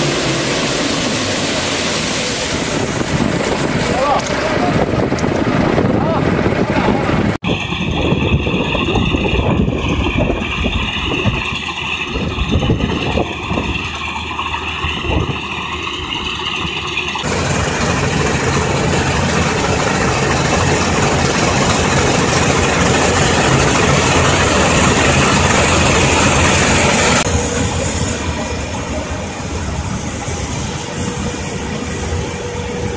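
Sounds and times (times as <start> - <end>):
combine harvester running: 0.0 - 32.9.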